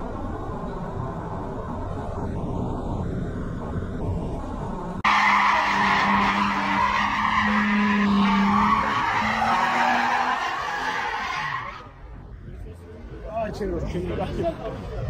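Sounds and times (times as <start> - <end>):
car engine: 0.0 - 14.9
car tyres squealing on asphalt: 5.0 - 12.1.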